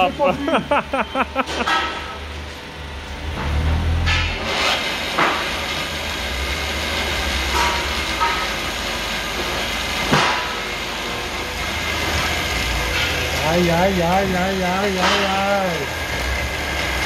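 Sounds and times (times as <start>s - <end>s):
milling machine drone: 0.0s - 17.0s.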